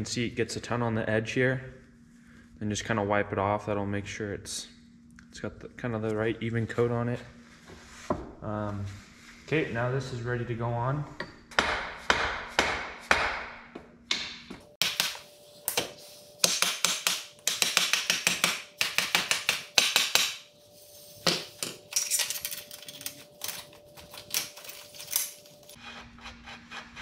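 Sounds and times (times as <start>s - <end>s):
faint steady hum: 0.0s - 11.7s.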